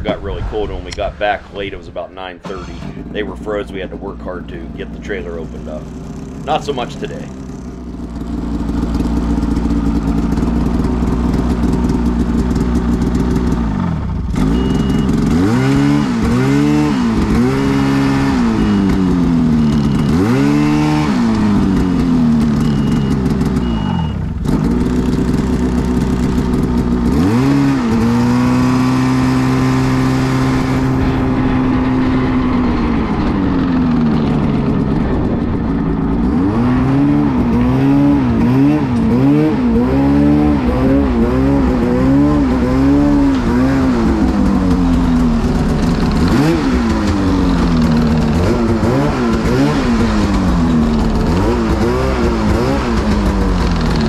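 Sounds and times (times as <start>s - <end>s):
snowmobile engine revving: 0.0s - 7.6s, 8.2s - 54.0s.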